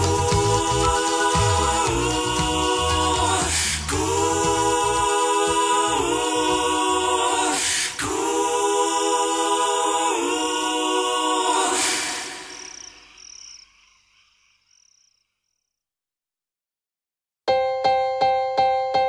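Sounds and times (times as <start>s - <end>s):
low bass: 0.0s - 5.1s
a cappella voices singing chords: 0.0s - 13.1s.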